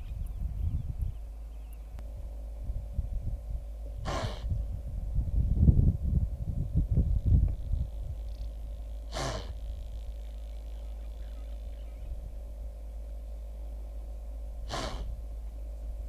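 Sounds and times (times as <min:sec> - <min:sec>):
steady low rumble: 0:00.0 - 0:16.0
wildebeest snorting: 0:04.0 - 0:04.5, 0:09.0 - 0:12.1, 0:14.6 - 0:15.2.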